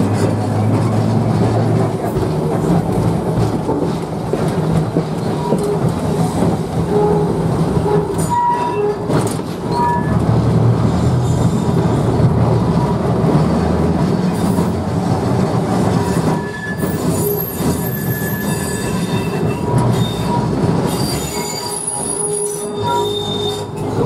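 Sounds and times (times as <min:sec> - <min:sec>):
tram wheels rumbling on rails: 0:00.0 - 0:24.0
high wheel squeals: 0:16.0 - 0:24.0.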